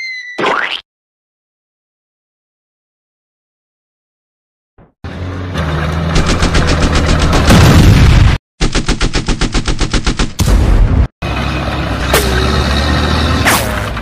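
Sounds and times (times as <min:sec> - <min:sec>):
machine gun automatic fire: 0:06.2 - 0:07.8.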